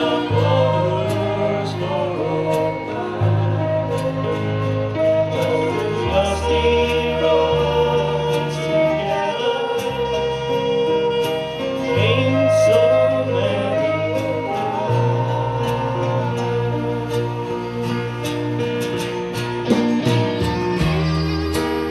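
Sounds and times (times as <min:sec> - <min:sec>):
man singing a slow ballad: 0:00.0 - 0:04.4, 0:05.3 - 0:17.0
low bass notes: 0:00.0 - 0:21.9
strummed acoustic guitars: 0:00.0 - 0:21.9.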